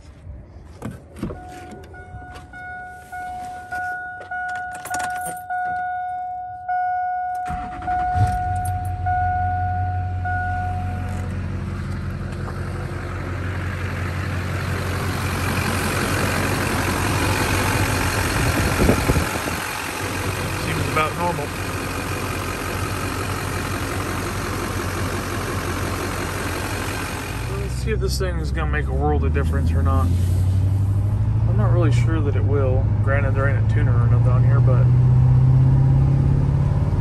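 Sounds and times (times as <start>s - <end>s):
diesel engine cranking and idling: 0.6s - 37.0s.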